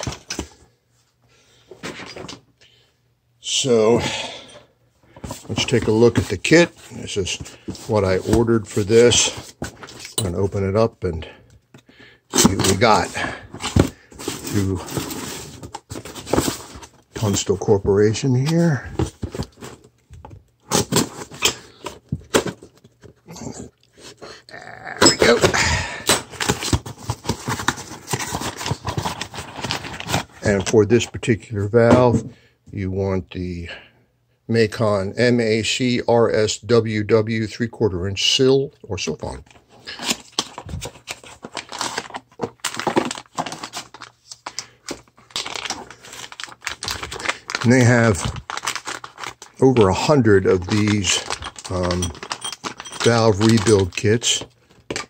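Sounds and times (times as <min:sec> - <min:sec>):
plastic bag crinkling: 0:40.5 - 0:54.4.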